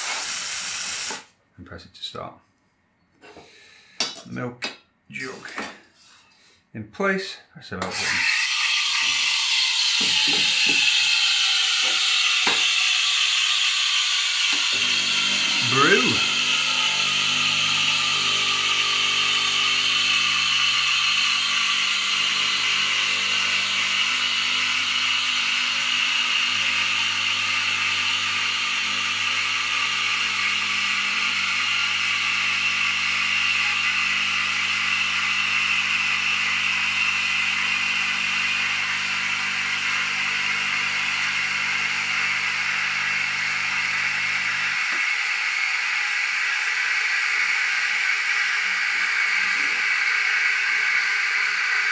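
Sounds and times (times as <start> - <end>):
steam wand hissing: 0.0 - 1.3, 8.0 - 29.8
espresso pump humming: 8.1 - 51.9.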